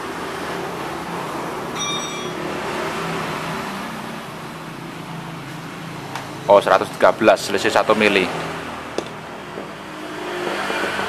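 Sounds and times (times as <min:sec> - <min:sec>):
brief high tone: 0:01.8 - 0:02.5.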